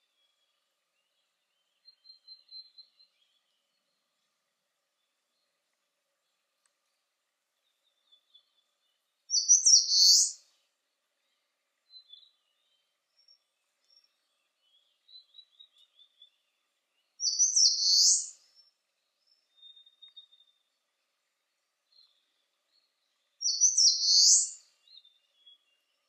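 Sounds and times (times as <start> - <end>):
warbler singing high-pitched song: 0.0 - 4.1, 7.7 - 10.6, 11.8 - 20.7, 21.9 - 26.0
faint short bird chirps: 9.3 - 10.5, 17.2 - 18.6, 23.4 - 25.6.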